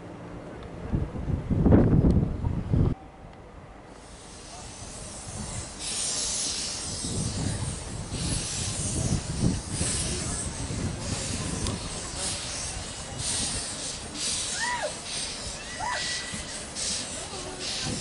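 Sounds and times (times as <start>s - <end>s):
steam hissing from cylinders: 3.9s - 18.0s
steam locomotive engine beats: 3.9s - 18.0s.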